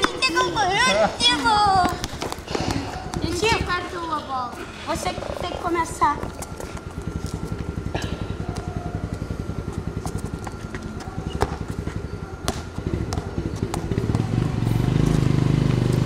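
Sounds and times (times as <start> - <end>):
louder engine humming: 1.5 - 16.0
vehicle engine pulsing: 1.5 - 16.0.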